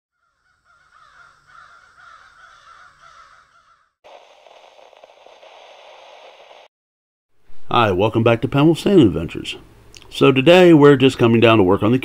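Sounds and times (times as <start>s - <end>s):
harsh bird cawing: 0.1s - 4.9s
static hiss: 4.1s - 6.7s.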